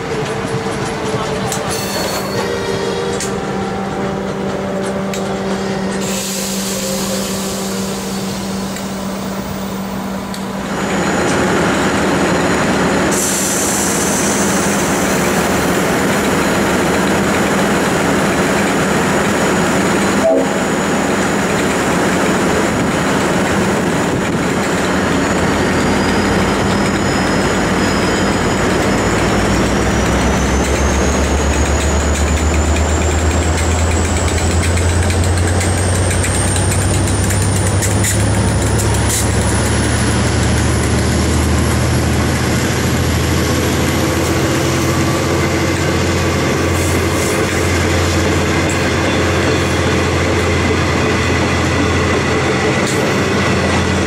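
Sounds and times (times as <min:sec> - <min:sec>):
diesel locomotive running: 0:00.0 - 0:54.0
train carriages rolling past: 0:00.0 - 0:54.0
wheels rumbling over track: 0:00.0 - 0:54.0
wheel squeal: 0:24.6 - 0:46.0.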